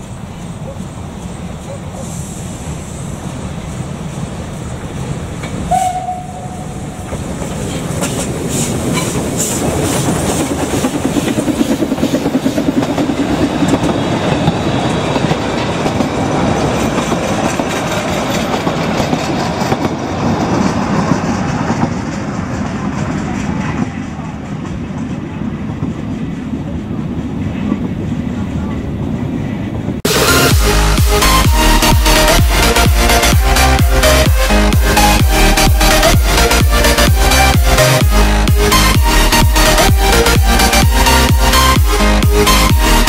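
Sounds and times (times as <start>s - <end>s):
train rumbling past: 0.0s - 43.0s
steam train whistle blast: 5.7s - 7.1s
wheels clicking over rail joints: 6.9s - 26.5s.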